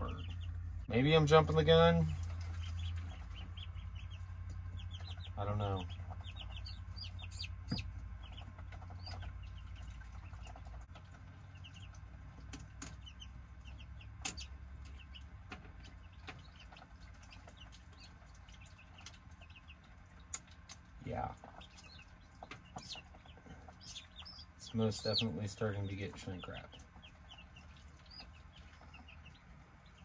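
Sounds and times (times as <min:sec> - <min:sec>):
chicks and ducklings peeping: 0:00.0 - 0:30.0.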